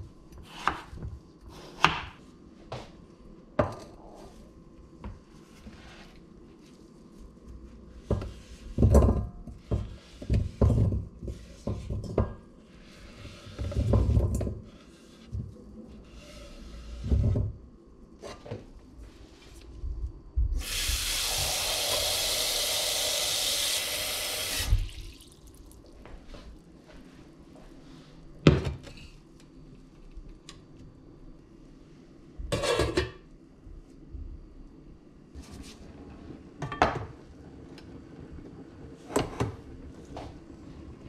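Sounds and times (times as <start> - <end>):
tap water running into pot: 20.6 - 25.9.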